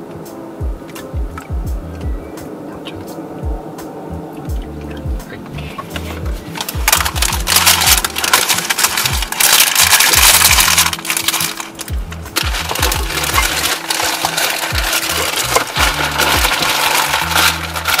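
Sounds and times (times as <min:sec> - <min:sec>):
bass-heavy music with kick drum: 0:00.0 - 0:18.0
crackle of small clicks: 0:06.6 - 0:18.0.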